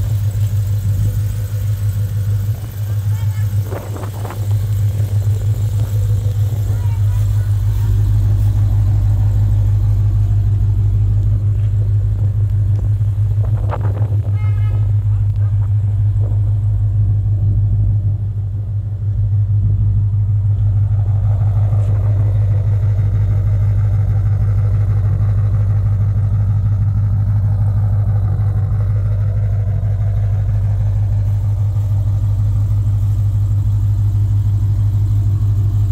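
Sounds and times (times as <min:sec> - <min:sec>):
car engine idling: 0:00.0 - 0:35.9.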